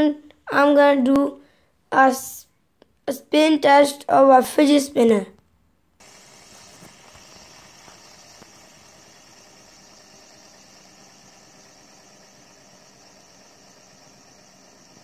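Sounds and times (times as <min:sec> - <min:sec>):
fidget spinner bearing whirring: 0:06.0 - 0:15.0.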